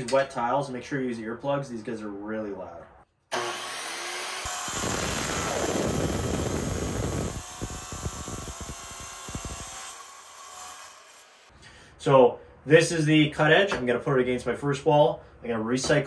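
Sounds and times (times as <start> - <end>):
tile saw grinding: 3.3 - 11.5
high motor whine: 4.5 - 9.6.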